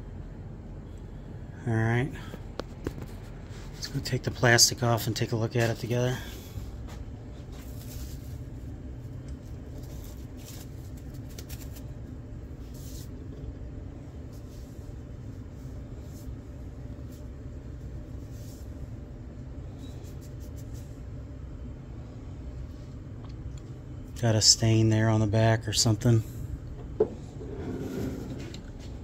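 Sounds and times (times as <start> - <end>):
steady low hum: 0.0 - 29.0
plastic wrap crinkling: 9.3 - 12.0.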